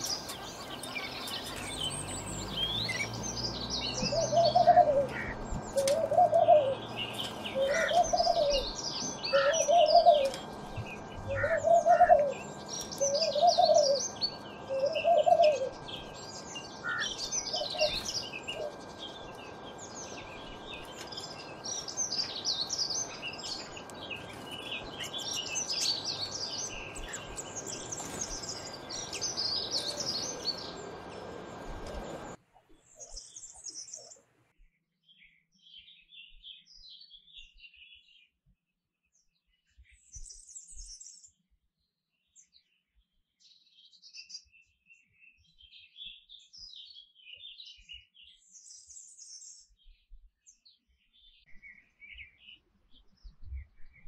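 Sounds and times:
canaries chirping and twittering: 0.0s - 32.4s.

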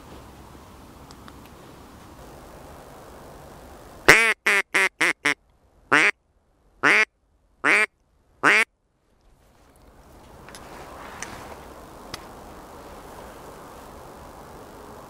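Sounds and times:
duck call quacks: 4.1s - 6.2s, 6.8s - 8.7s.

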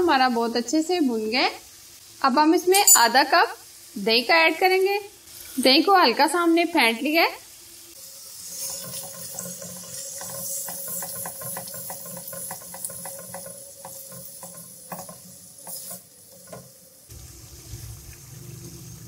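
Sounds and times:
curry sizzling in oil: 0.0s - 19.0s
spatula ticks and scrapes: 8.6s - 16.7s.

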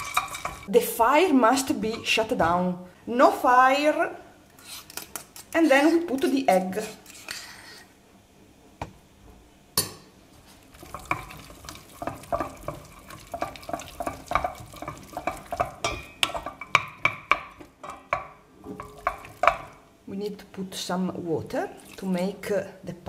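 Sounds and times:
wooden spoon stirring pasta: 0.0s - 0.7s, 10.4s - 19.9s.

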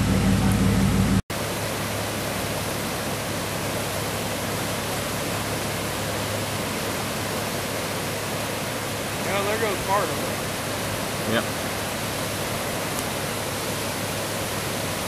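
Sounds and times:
floodwater rushing: 0.0s - 15.0s.

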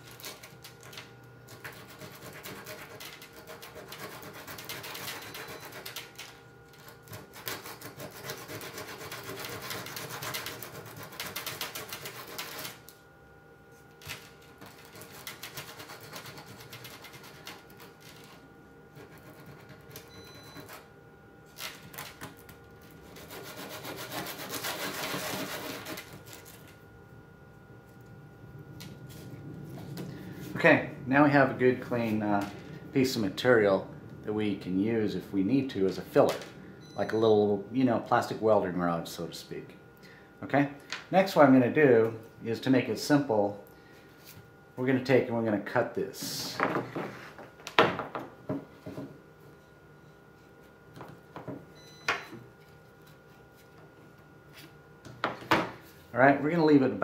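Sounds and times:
plastic rubbed on sandpaper: 23.2s - 26.1s.

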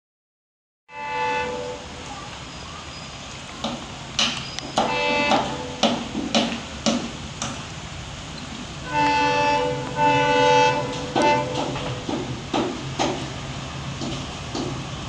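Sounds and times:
locomotive horn blasts: 0.9s - 2.0s, 4.8s - 6.0s, 8.8s - 12.0s
train rumble: 0.9s - 15.0s.

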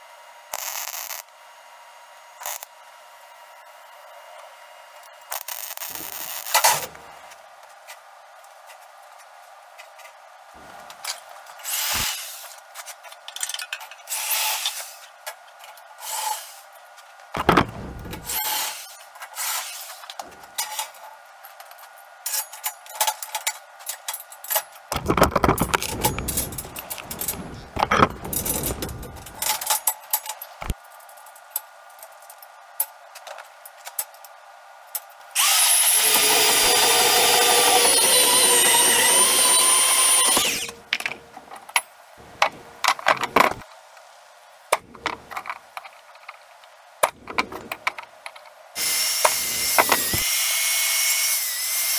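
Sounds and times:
knocks and clanks on steel: 17.4s - 18.7s, 24.9s - 30.8s, 47.0s - 48.4s
band saw cutting steel: 17.8s - 20.0s, 35.4s - 40.8s, 48.8s - 51.9s.

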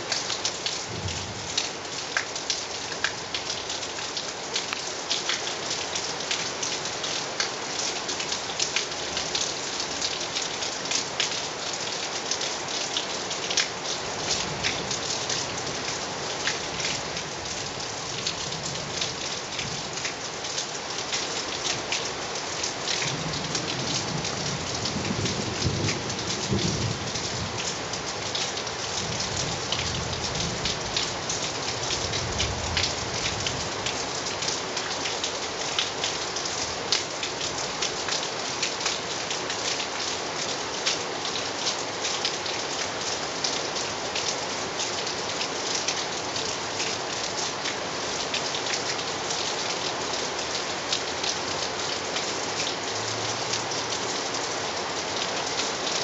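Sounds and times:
steady rain: 0.0s - 56.0s
low rumble of thunder: 0.9s - 1.5s, 23.1s - 27.6s.

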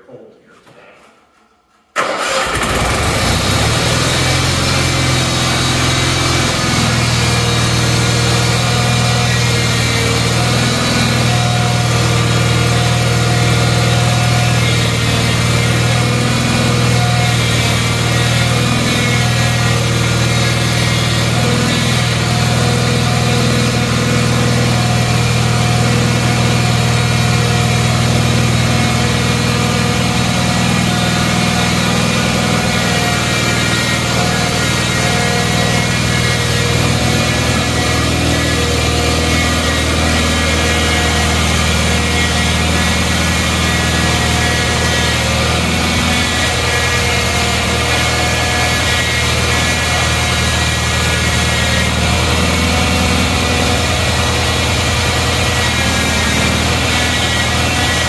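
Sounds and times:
garden tractor engine starting: 2.0s - 58.0s.

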